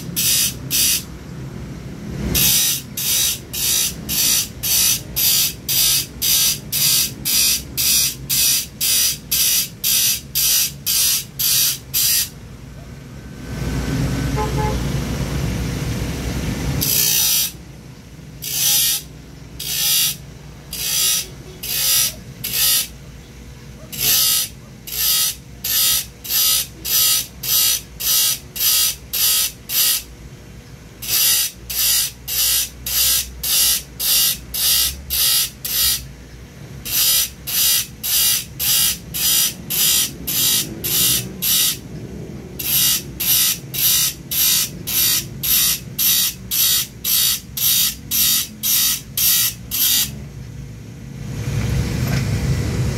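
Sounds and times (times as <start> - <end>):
file rasping on saw teeth: 0.0 - 1.1, 2.3 - 12.3, 16.8 - 17.6, 18.4 - 22.9, 23.9 - 30.1, 31.0 - 36.1, 36.8 - 41.8, 42.6 - 50.2.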